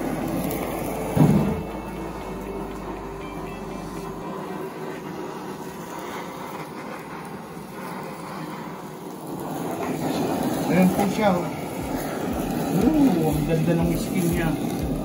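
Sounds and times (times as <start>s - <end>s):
blowtorch flame hissing: 0.0s - 15.0s.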